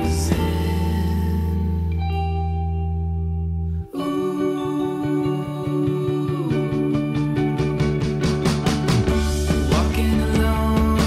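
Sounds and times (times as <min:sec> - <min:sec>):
background music with steady beat: 0:06.6 - 0:11.0.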